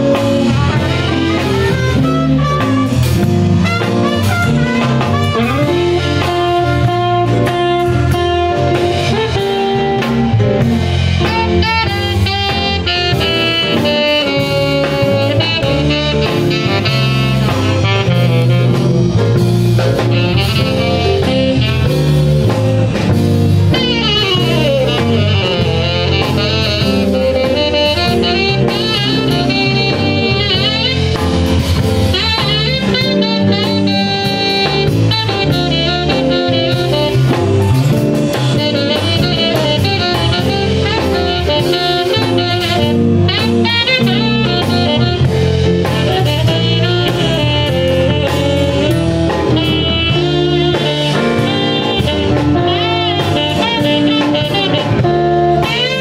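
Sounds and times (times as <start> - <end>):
drum kit: 0.0 - 56.0
guitar: 0.0 - 56.0
saxophone: 0.0 - 56.0
trumpet: 0.0 - 56.0.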